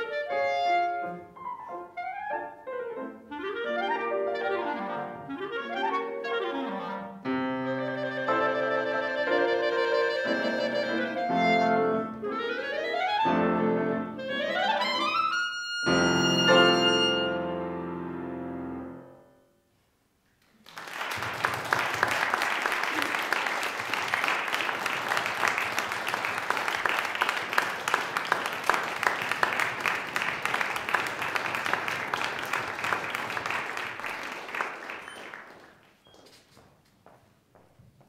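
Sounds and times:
audience applauding: 0:20.4 - 0:36.4
footsteps on wooden stage: 0:35.2 - 0:38.0.

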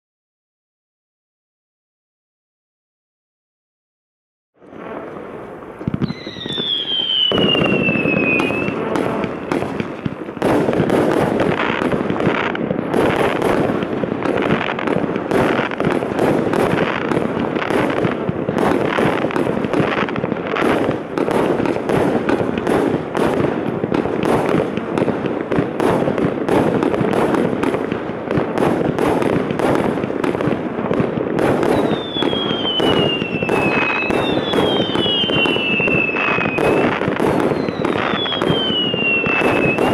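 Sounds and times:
fireworks shots and crackling: 0:04.6 - 0:39.9
falling firework whistle: 0:04.7 - 0:13.5, 0:31.4 - 0:39.9.

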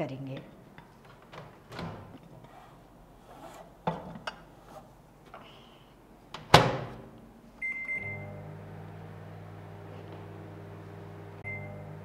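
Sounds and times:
microwave running hum: 0:06.3 - 0:12.0
microwave door banging shut: 0:06.5 - 0:07.0.

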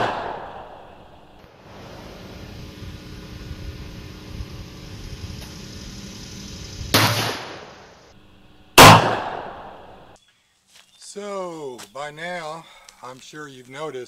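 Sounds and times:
revolver gunshots: 0:00.0 - 0:01.0, 0:06.9 - 0:07.9, 0:08.8 - 0:10.0.

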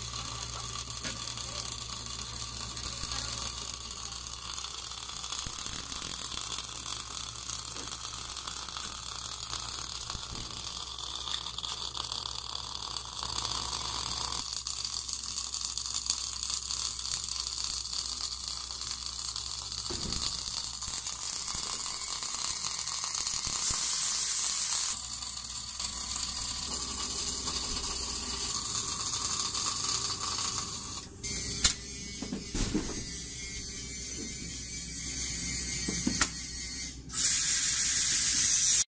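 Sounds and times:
welding arc crackling hiss: 0:00.0 - 0:38.9
sharp click: 0:31.6 - 0:31.8, 0:35.9 - 0:36.4.

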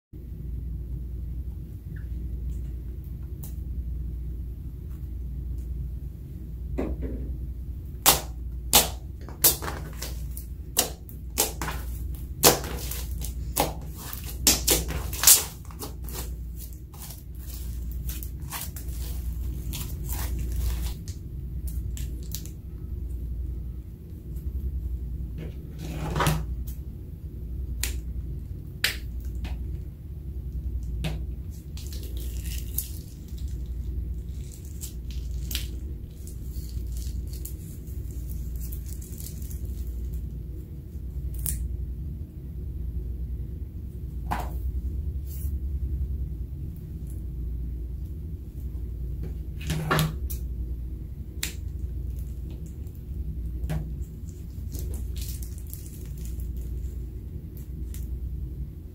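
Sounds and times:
steady low hum: 0:00.1 - 0:58.9
slime squelching: 0:08.0 - 0:22.8, 0:30.5 - 0:40.4.

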